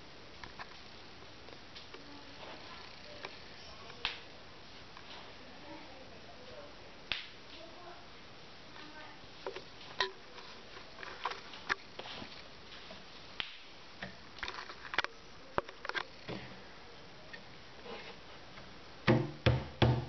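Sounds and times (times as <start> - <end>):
hand striking cajon: 19.1 - 20.0.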